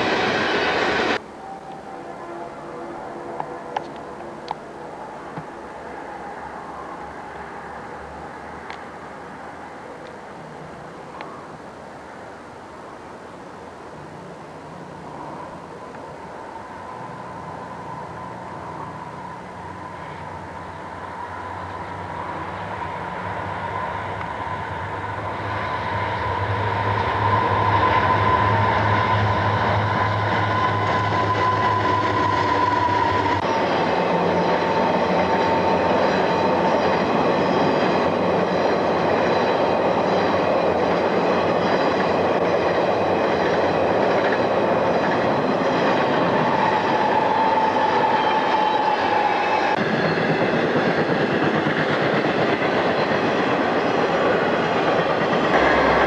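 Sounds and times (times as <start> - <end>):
train high whine: 0.0 - 56.0
diesel locomotive rumbling: 14.0 - 56.0.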